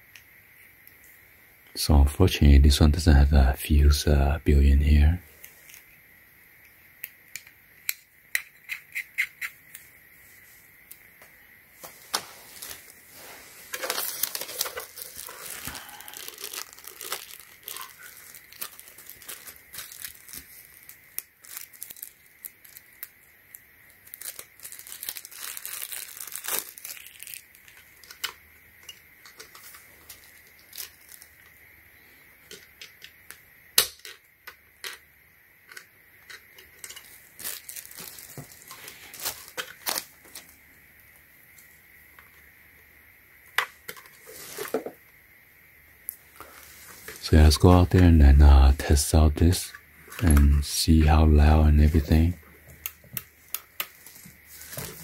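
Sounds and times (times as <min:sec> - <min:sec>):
plastic bag crinkling and tearing: 0:12.0 - 0:23.2, 0:23.9 - 0:28.4, 0:29.3 - 0:31.5, 0:36.8 - 0:40.6, 0:53.4 - 0:55.0
plastic parts clicking and knocking: 0:27.7 - 0:30.9, 0:32.4 - 0:37.2.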